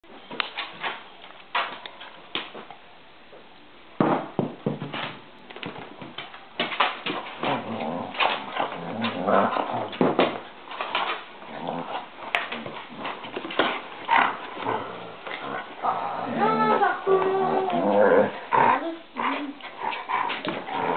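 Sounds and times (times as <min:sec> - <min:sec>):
dogs growling and whining: 0:07.4 - 0:10.1, 0:11.4 - 0:13.4, 0:14.0 - 0:20.9.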